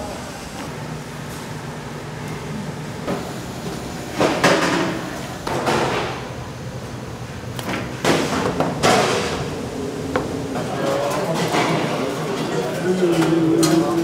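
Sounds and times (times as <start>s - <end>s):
kitchen equipment hum: 0.0s - 14.0s
metal trays and utensils clattering: 8.0s - 9.5s, 10.5s - 14.0s.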